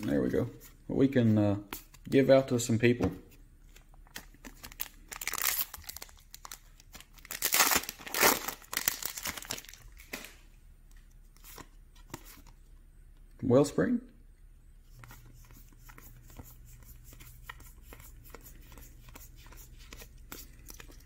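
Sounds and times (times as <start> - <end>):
wrapper crinkling and tearing: 4.4 - 10.1.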